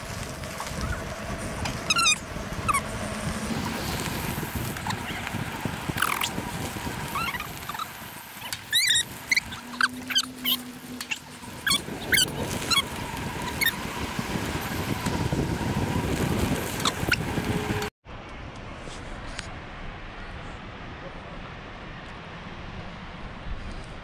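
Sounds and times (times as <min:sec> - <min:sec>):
bike tyres on dirt trail: 0:00.0 - 0:17.9
wind on microphone: 0:00.0 - 0:17.9.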